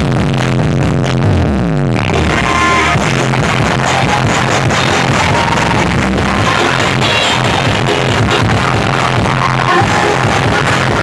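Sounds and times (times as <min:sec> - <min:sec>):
falling bass glide: 0:00.0 - 0:11.0
loud music with strong bass: 0:00.0 - 0:11.0.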